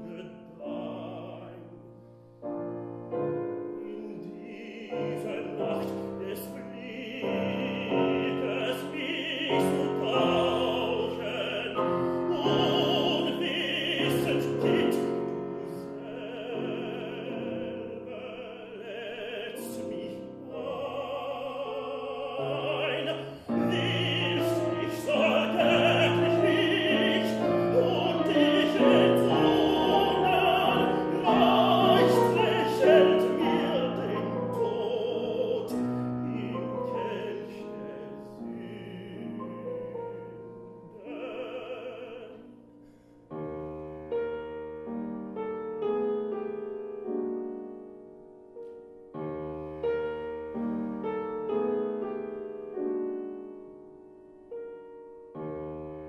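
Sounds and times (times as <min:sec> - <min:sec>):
piano accompaniment: 0:00.0 - 0:56.0
tenor singing with vibrato: 0:03.7 - 0:42.7.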